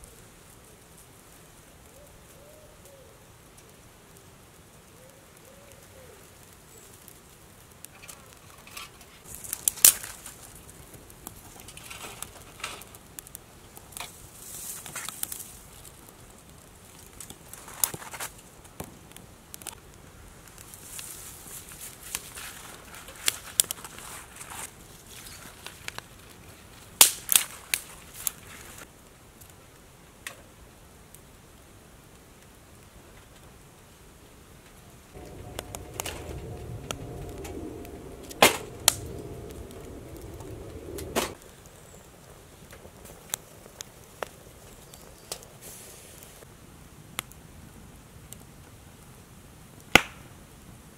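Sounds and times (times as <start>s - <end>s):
wood fire crackling and popping: 3.3s - 33.6s, 34.6s - 46.5s, 47.1s - 49.1s, 49.8s - 50.4s
flame hissing: 35.2s - 41.7s, 45.4s - 46.5s.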